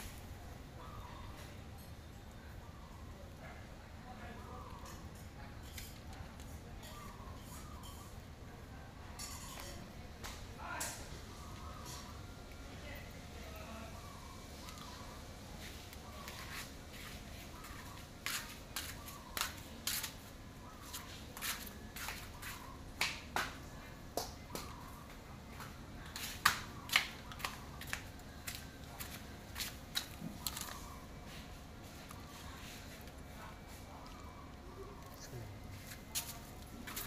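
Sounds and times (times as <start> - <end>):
low steady background noise: 0.0 - 37.0.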